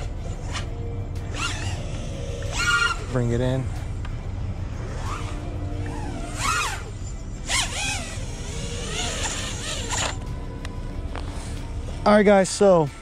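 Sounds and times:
quadcopter motors whining: 0:00.0 - 0:03.4, 0:04.8 - 0:10.4
background music: 0:00.0 - 0:13.0.

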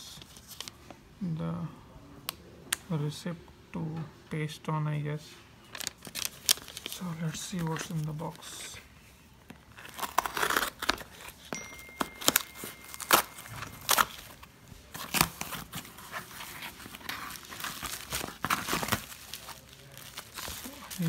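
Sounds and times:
plastic wrapping crinkling: 0:05.7 - 0:08.8, 0:09.6 - 0:21.0
cardboard rustling and tearing: 0:05.8 - 0:08.8, 0:09.6 - 0:21.0
knife slitting packing tape: 0:09.8 - 0:11.4.

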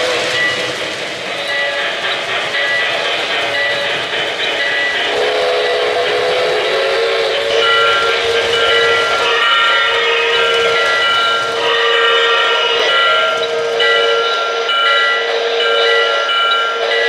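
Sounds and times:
model trains rolling on track: 0:00.0 - 0:17.0
electronic steam whistle: 0:04.7 - 0:17.0.

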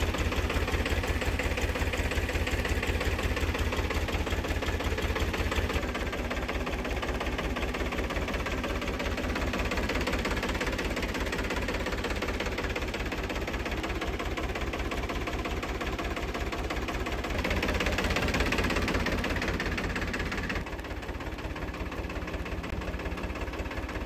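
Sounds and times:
tractor diesel engine idling: 0:00.0 - 0:24.0.

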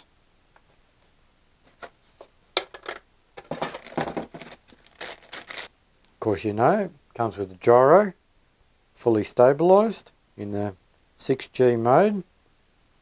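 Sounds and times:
knocks and rustles: 0:01.7 - 0:05.6.

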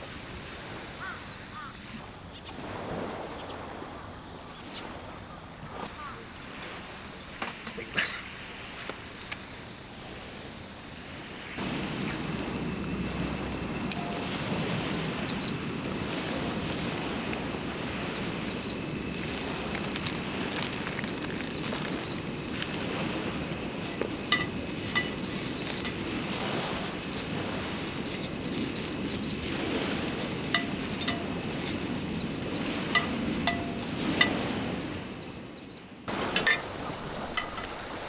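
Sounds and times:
sausages sizzling in a frying pan: 0:11.6 - 0:35.6
tongs clicking against a pan: 0:30.5 - 0:32.0, 0:32.9 - 0:34.4.

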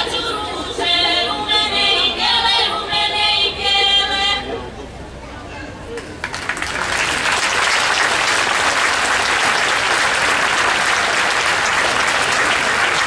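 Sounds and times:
large audience applauding: 0:06.2 - 0:13.0.

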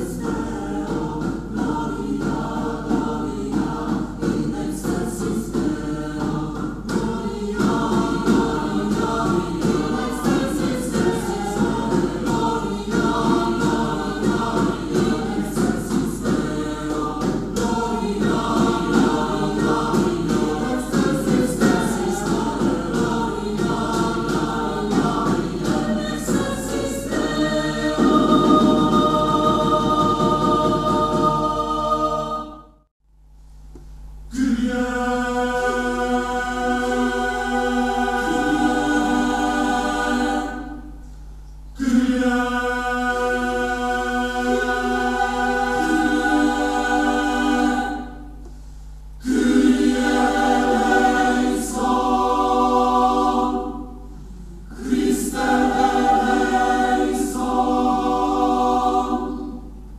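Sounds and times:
mixed choir singing: 0:00.0 - 0:32.9, 0:34.3 - 0:41.0, 0:41.7 - 0:48.5, 0:49.1 - 0:59.9.

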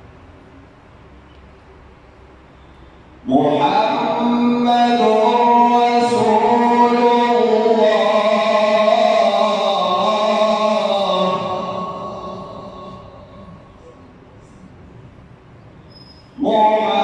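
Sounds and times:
man chanting melodically: 0:03.2 - 0:14.1, 0:16.4 - 0:17.0.

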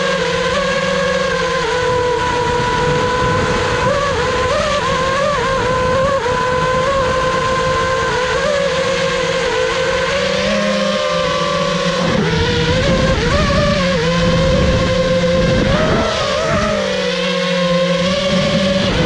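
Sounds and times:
drone motors whining: 0:00.0 - 0:19.0
wind noise on microphone: 0:00.0 - 0:19.0.

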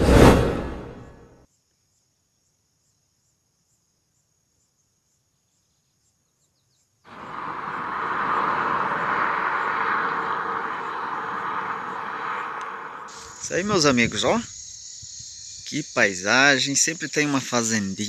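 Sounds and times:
whoosh sound effect: 0:00.0 - 0:01.2, 0:07.1 - 0:14.3
buzzing insect chorus: 0:07.1 - 0:18.0.

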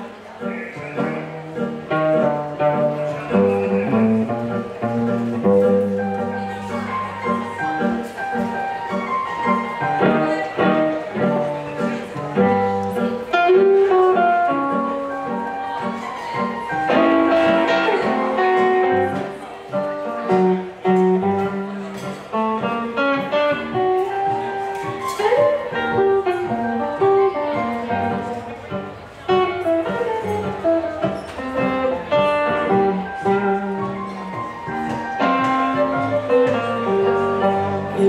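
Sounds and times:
electric keyboard: 0:00.0 - 0:38.0
electric guitar single-note lines: 0:00.4 - 0:15.6, 0:16.6 - 0:21.7.

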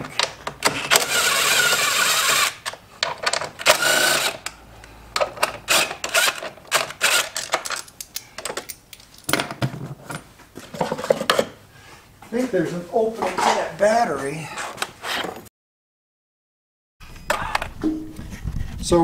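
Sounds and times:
cordless drill running: 0:01.0 - 0:02.6, 0:03.6 - 0:04.4
clicks and knocks of handled parts: 0:02.6 - 0:03.7, 0:04.4 - 0:11.5.

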